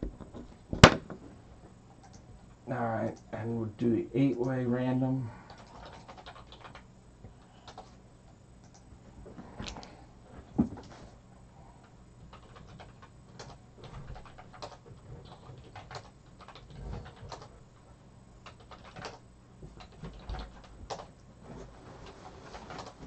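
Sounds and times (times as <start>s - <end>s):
low steady hum: 0.0s - 23.0s
computer keyboard typing: 2.0s - 2.2s, 5.5s - 8.0s, 8.6s - 8.9s, 12.2s - 17.6s, 18.4s - 21.2s, 22.0s - 23.0s.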